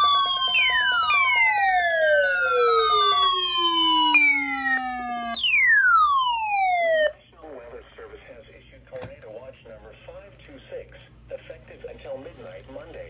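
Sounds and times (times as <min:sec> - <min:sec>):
weather radio alarms: 0:00.0 - 0:07.2.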